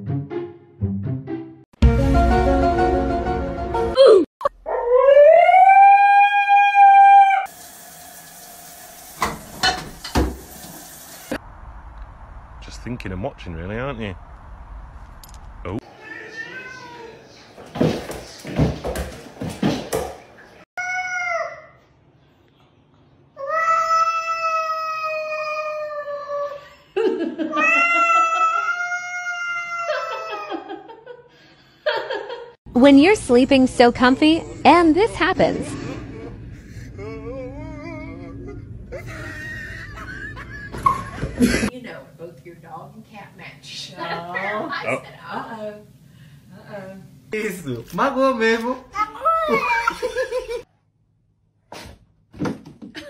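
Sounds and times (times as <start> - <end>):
cat yowling: 4.8 - 7.5, 16.0 - 17.2, 27.6 - 30.4.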